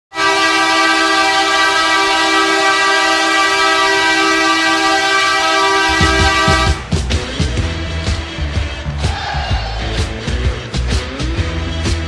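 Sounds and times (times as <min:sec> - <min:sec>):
goal horn blast: 0:00.1 - 0:07.2.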